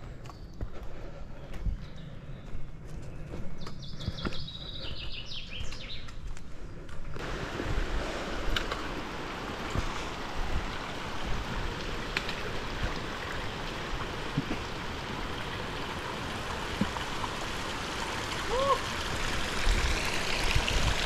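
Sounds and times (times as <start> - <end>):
stream rushing: 7.2 - 21.0.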